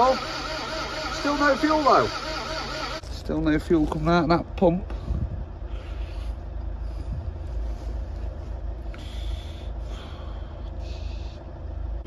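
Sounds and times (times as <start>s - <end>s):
diesel engine cranking on starter: 0.0s - 3.1s.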